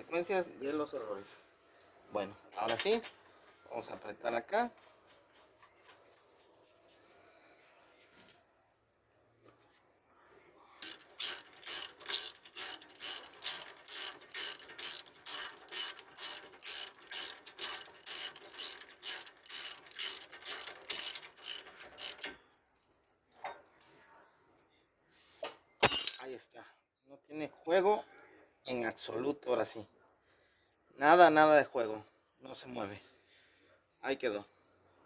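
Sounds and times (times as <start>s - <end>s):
ratchet wrench clicking: 10.8s - 22.4s.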